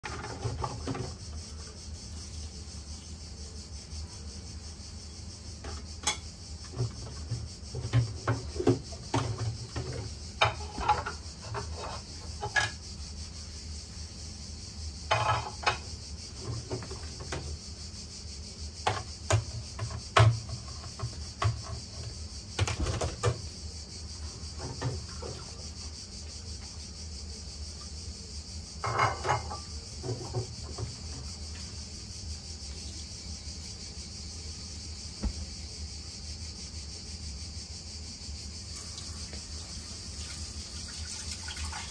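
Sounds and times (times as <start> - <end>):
dishes and cutlery clinking: 28.8 - 30.3
steady high hiss: 30.7 - 41.9.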